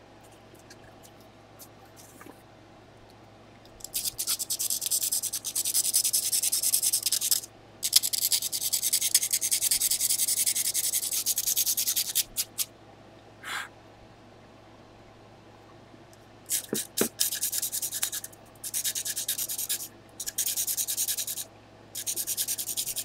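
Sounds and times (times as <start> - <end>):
pencil rasping on sandpaper: 22.0 - 23.0.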